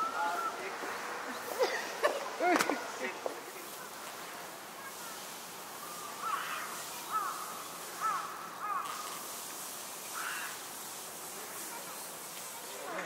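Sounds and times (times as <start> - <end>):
bird calling: 0.0 - 1.8, 4.8 - 9.3, 10.0 - 10.7
background hiss: 0.0 - 13.0.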